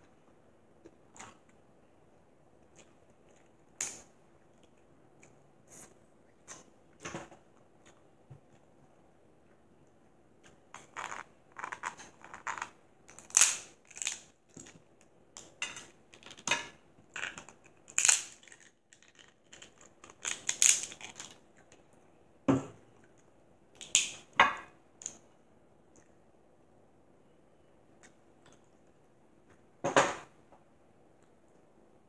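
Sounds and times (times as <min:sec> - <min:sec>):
crab shell cracking: 0:17.2 - 0:21.4.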